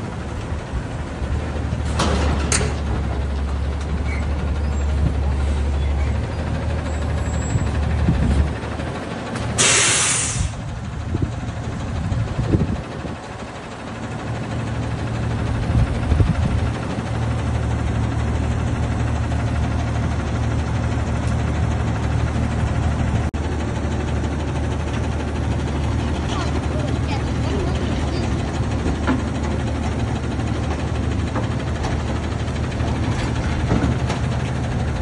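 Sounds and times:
garbage truck engine idling: 0.0 - 35.0
air brakes hissing: 9.6 - 10.7.

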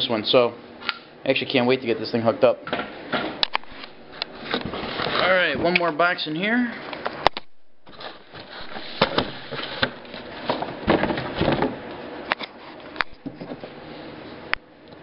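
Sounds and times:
cardboard scraping and rustling: 3.6 - 5.6, 7.8 - 11.8.

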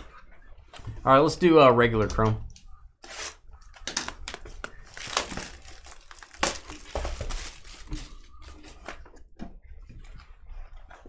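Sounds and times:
foil wrapper tearing and crinkling: 3.1 - 8.3.

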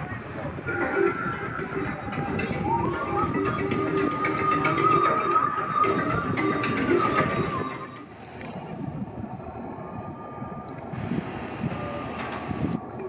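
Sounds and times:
ride music: 0.0 - 8.3.

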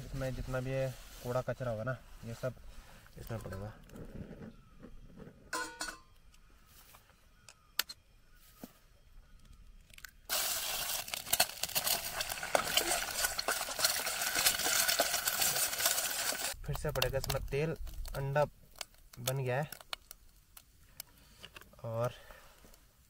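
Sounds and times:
egg sizzling in hot oil: 10.3 - 16.6.

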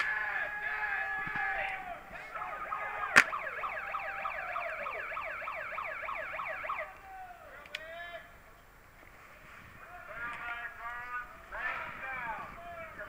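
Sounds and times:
sharp crack: 1.3 - 3.7
electronic siren yelp: 2.2 - 7.0.

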